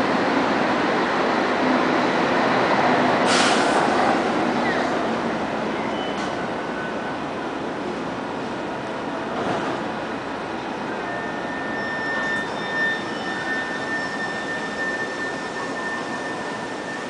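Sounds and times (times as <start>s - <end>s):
city rumble and hiss: 0.0s - 11.1s.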